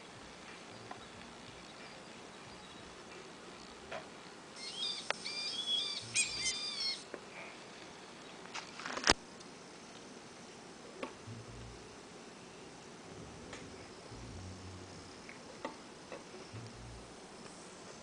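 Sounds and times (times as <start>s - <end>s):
synthetic bird-like chirping: 4.6s - 7.0s.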